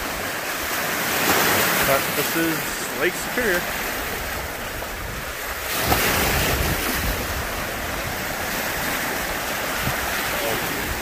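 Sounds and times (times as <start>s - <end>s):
waves washing over rocky shore: 0.0s - 11.0s
wind buffeting microphone: 3.4s - 11.0s.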